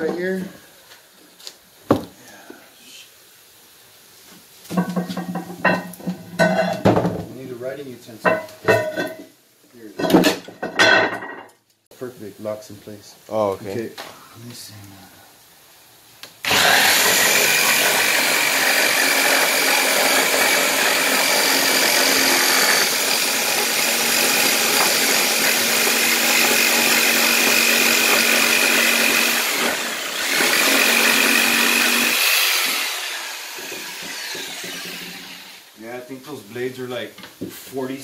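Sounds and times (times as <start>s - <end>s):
jigsaw cutting wood: 16.4s - 35.7s.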